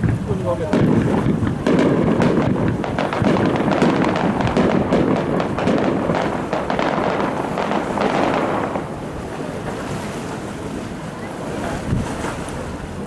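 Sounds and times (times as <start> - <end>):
fireworks bursting: 0.0 - 9.8
fireworks crackling: 0.0 - 9.8.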